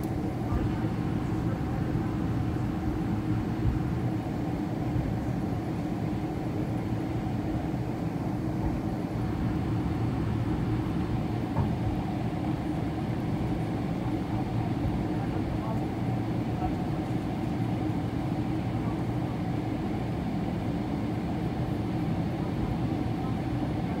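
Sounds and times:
aircraft cabin engine rumble: 0.0 - 24.0.

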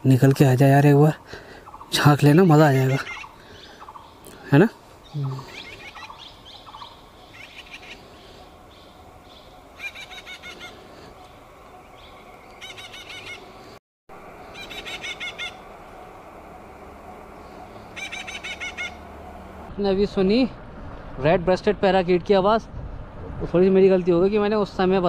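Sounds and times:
parakeet chicks chattering: 14.5 - 15.6, 17.4 - 19.0.

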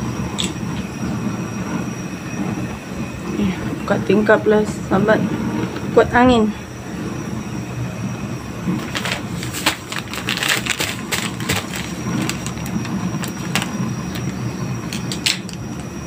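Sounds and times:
gas burner rumbling: 0.0 - 16.0
crackles from heating pot: 6.7 - 16.0.

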